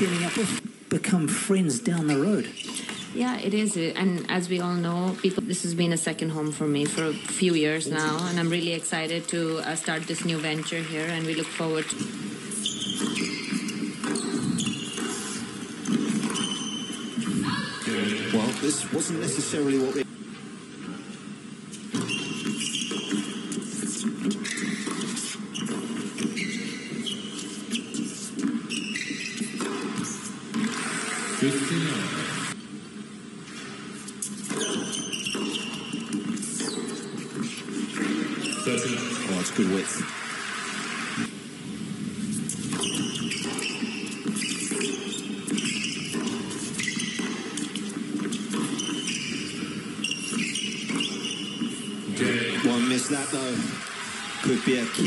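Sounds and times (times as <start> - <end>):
sneaker squeaks: 2.0 - 3.2, 6.4 - 20.0, 21.7 - 32.0, 33.5 - 39.9, 42.3 - 54.9
racket striking tennis ball: 42.7 - 49.4.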